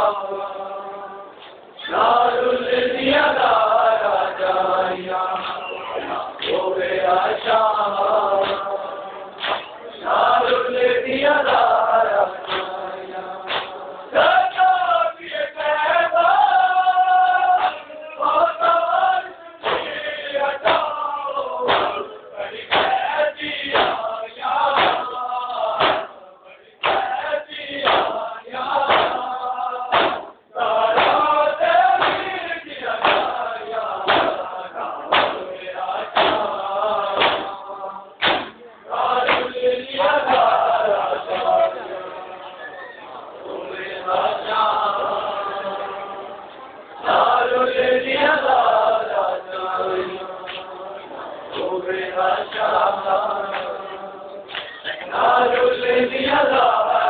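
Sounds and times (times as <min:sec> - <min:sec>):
men chanting in chorus: 0:00.0 - 0:57.0
hand slaps on chest: 0:09.4 - 0:09.7, 0:29.9 - 0:30.3, 0:38.2 - 0:38.6.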